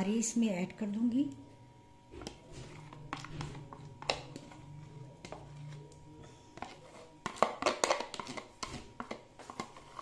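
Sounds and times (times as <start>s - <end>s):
faint low hum: 0.0s - 10.0s
spoon knocking plastic jug: 2.2s - 4.6s, 6.6s - 9.9s.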